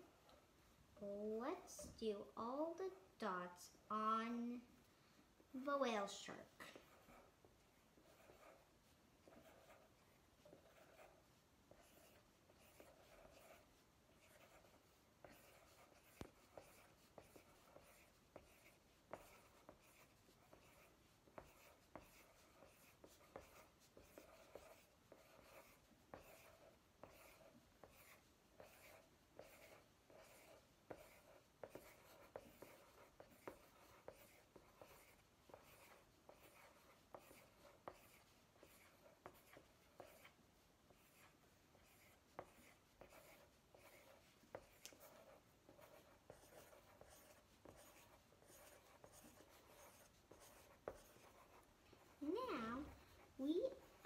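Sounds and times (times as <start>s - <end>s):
pencils scratching on paper: 1.0s - 4.6s, 5.6s - 54.0s.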